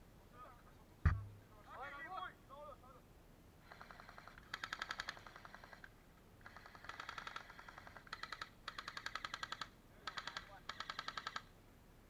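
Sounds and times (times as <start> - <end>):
airsoft rifles firing bursts: 3.6 - 5.8, 6.4 - 11.5.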